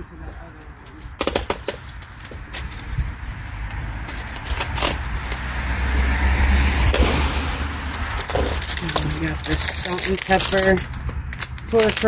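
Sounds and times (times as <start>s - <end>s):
packages clicking and knocking: 0.6s - 3.0s, 7.9s - 12.0s
car passing: 1.9s - 11.7s.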